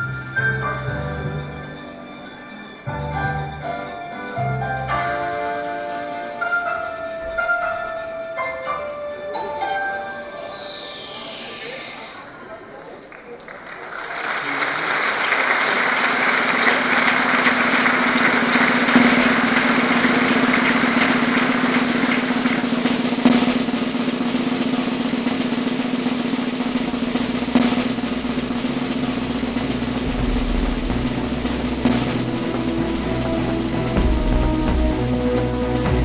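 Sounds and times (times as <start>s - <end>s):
applause: 13.1s - 23.1s
drum roll: 15.2s - 36.0s
sharp drum hit: 22.3s - 36.0s
steady low drone: 26.7s - 36.0s
deep bass pulse: 27.0s - 36.0s.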